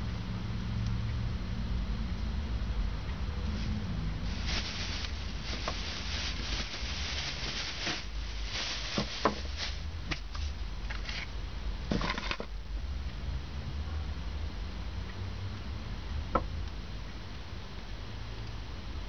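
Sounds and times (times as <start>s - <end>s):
plastic bag crinkling: 4.3s - 11.1s.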